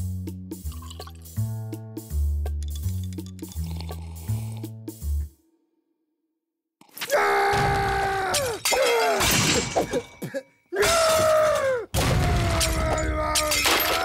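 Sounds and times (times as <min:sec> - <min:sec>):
china teacups smashing: 0:08.3 - 0:10.2, 0:12.6 - 0:14.0.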